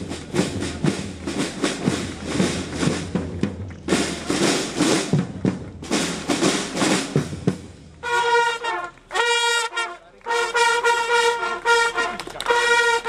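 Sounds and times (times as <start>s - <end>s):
drums beating marching cadence: 0.0s - 13.0s
brass holding notes: 8.0s - 13.0s.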